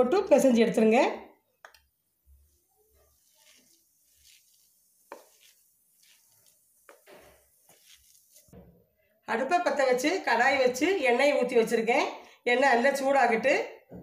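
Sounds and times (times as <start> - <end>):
hand kneading dough: 1.9 - 8.6.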